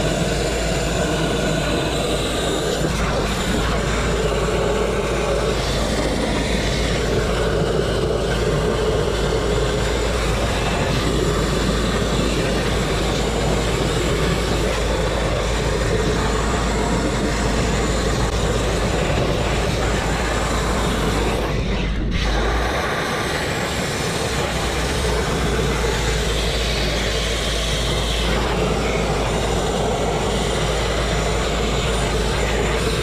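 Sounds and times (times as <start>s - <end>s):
grit blasting hiss on metal: 0.0s - 33.0s.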